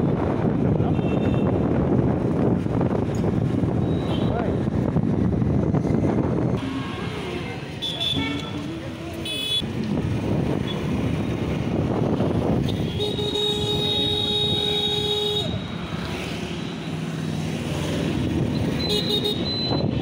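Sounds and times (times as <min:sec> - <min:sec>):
dense road traffic: 0:00.0 - 0:20.0
vehicle horn: 0:07.8 - 0:09.6, 0:12.7 - 0:15.7.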